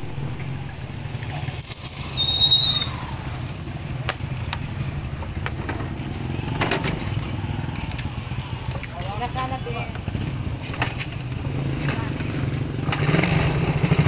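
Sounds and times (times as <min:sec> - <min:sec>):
motorcycle engine idling: 0:00.0 - 0:14.0
high squeal: 0:02.0 - 0:03.8, 0:06.9 - 0:07.8, 0:12.8 - 0:13.4.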